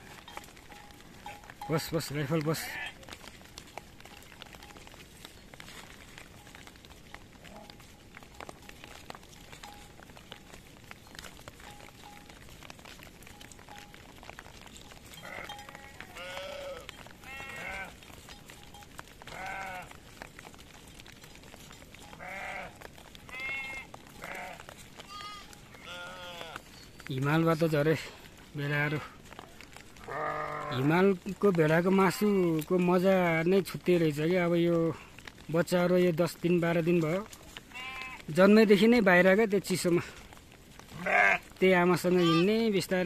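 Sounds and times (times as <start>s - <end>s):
rustling through brush: 0.0s - 43.0s
sheep bleating: 2.2s - 3.1s, 15.1s - 18.0s, 19.3s - 20.0s, 22.2s - 26.7s, 30.0s - 31.0s, 37.7s - 38.4s, 40.9s - 42.6s.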